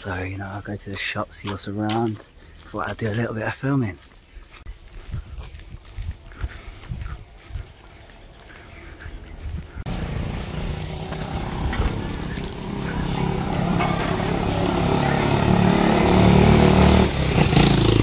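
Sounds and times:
motorbike engine running: 9.9 - 18.0.

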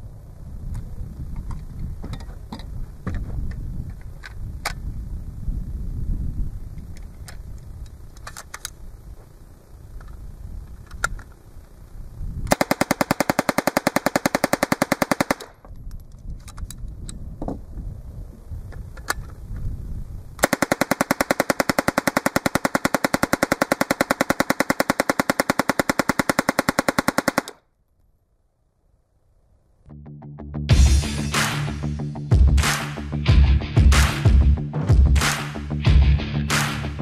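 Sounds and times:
submachine gun firing full-auto: 12.5 - 15.6, 20.4 - 27.6.

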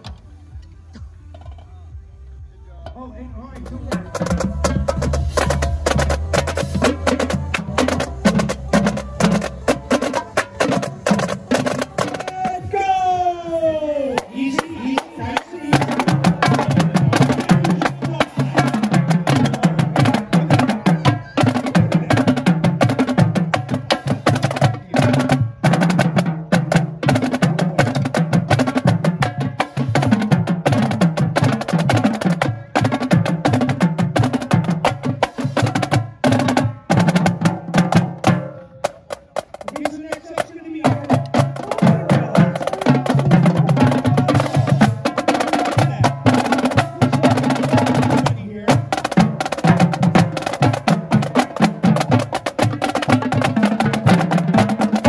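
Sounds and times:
marching drumline playing: 2.9 - 55.0.

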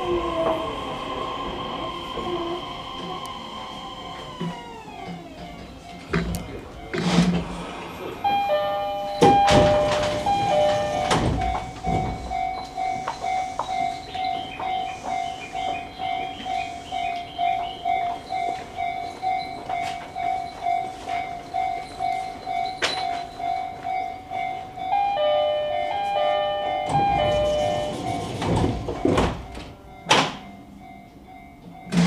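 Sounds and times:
two-note chime: 8.2 - 16.6, 17.5 - 31.9.

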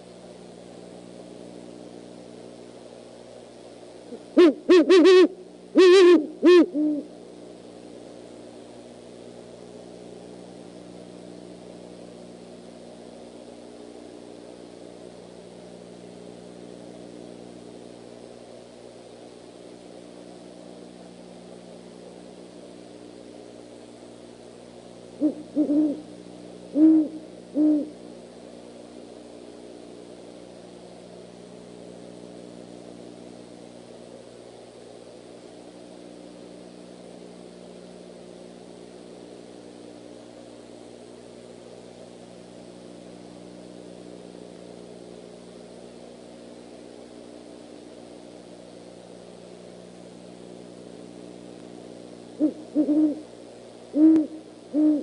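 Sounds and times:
steady low hum: 0.0 - 55.0
owl hooting: 4.1 - 7.1, 25.2 - 28.0, 52.4 - 55.0.

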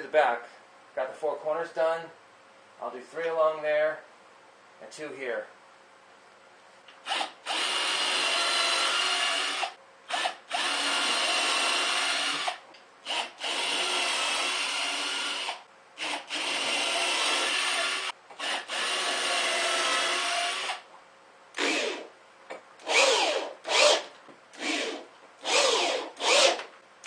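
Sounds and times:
cordless drill driving screws: 7.0 - 20.8, 21.6 - 22.1, 22.8 - 26.7.

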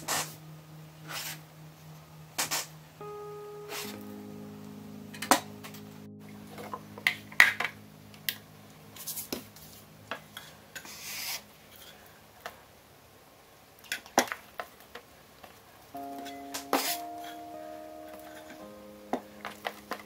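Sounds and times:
soft background music: 0.0 - 11.6, 16.0 - 20.0.

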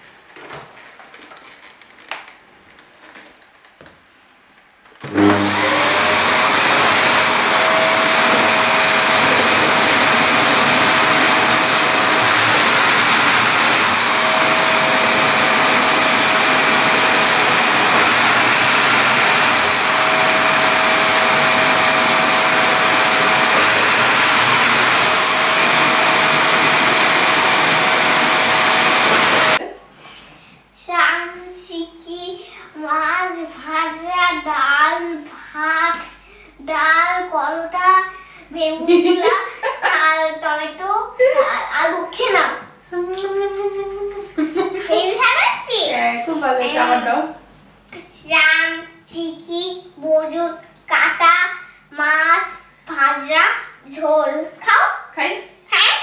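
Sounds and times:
vacuum cleaner running on rug: 5.0 - 29.6.

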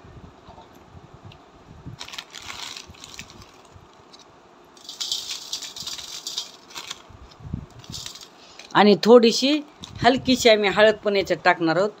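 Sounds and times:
grainy rattle of rock salt: 2.0 - 8.8.

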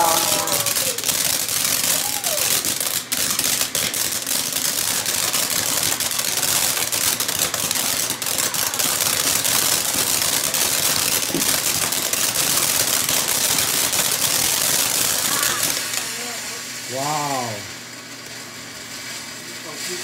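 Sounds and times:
fireworks fountain hissing and crackling: 0.0 - 20.0.

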